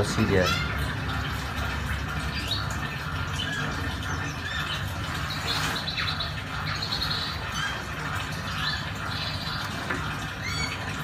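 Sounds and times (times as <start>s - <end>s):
small birds chirping: 0.0s - 11.0s
bird trills: 2.3s - 11.0s.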